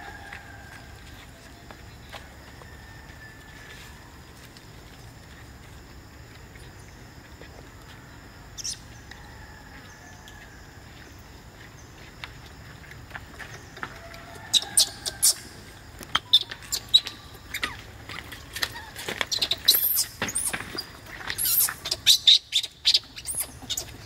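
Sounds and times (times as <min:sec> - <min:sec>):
baby monkey squeaking: 0:14.5 - 0:15.5, 0:16.3 - 0:17.8, 0:18.7 - 0:20.6, 0:21.3 - 0:24.0.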